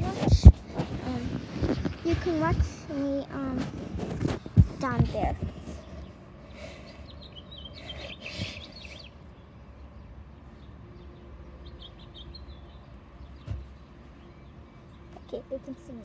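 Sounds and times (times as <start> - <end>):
low background rumble: 0.0 - 16.0
small birds chirping: 0.0 - 16.0.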